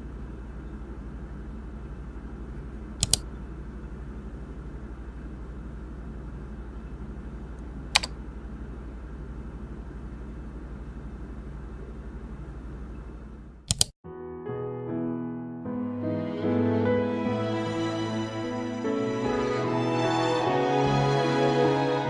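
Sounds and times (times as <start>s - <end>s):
steady low hum: 0.0s - 13.7s
computer mouse clicks: 3.0s - 3.3s, 7.9s - 8.2s, 13.6s - 13.9s.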